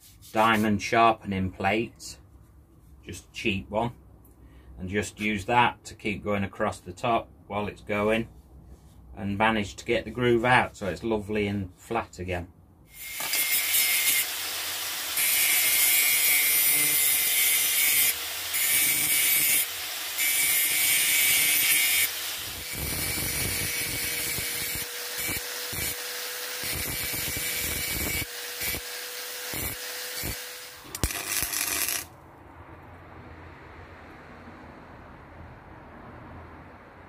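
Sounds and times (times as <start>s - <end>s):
angle grinder cutting steel: 12.9s - 32.1s.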